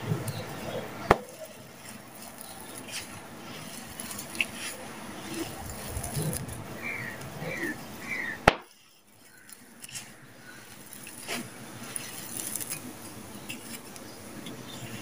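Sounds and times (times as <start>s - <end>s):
sand trickling onto heap: 0.5s - 15.0s
ticks of falling grit: 8.4s - 14.7s.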